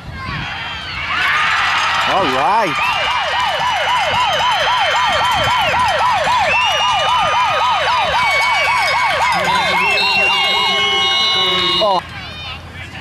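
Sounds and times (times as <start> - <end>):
electronic siren yelping: 2.2 - 12.0.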